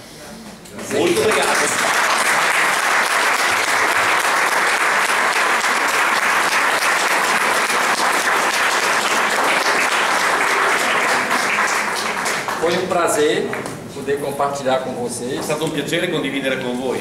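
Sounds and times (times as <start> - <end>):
audience applause: 0.8 - 13.2.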